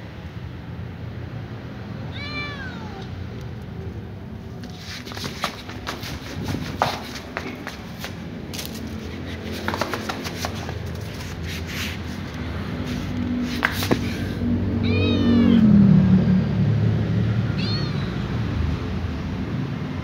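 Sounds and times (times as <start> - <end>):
kitten meowing: 2.1 - 3.2, 14.8 - 15.8, 17.5 - 18.4.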